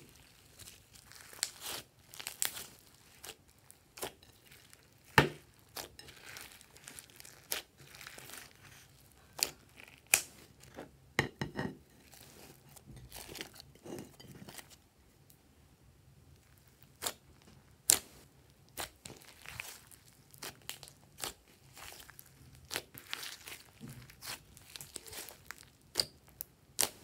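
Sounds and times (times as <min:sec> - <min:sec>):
slime squishing: 0:00.0 - 0:10.8, 0:16.5 - 0:27.0.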